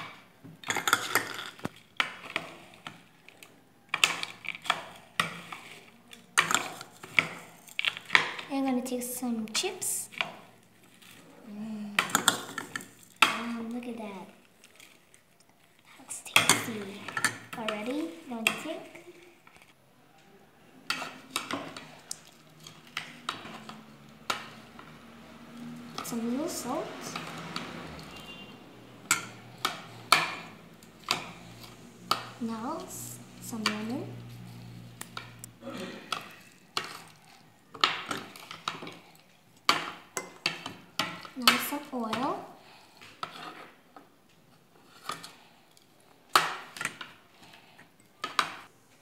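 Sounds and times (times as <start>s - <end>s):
plastic spoon scraping glass bowl: 43.0s - 43.8s.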